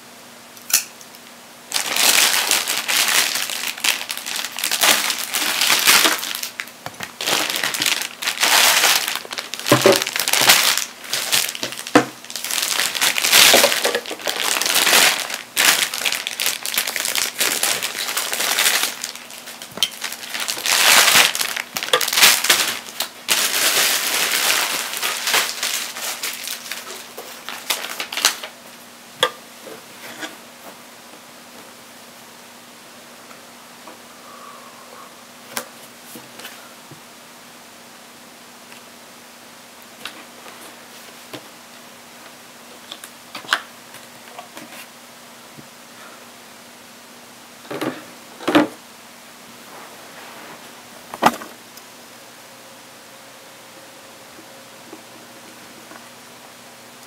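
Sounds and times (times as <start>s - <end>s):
plastic bags crinkling: 1.7s - 28.6s.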